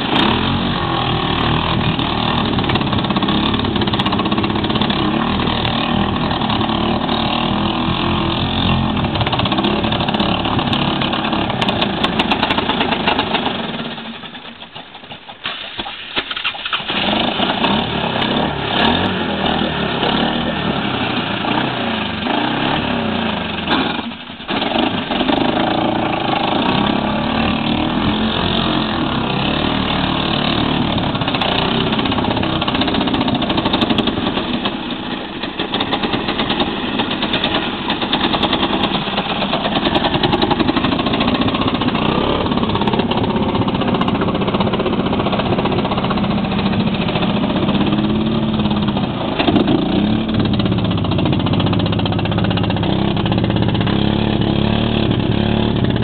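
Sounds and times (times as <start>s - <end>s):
atv engine revving: 0.0s - 14.6s, 16.2s - 56.0s.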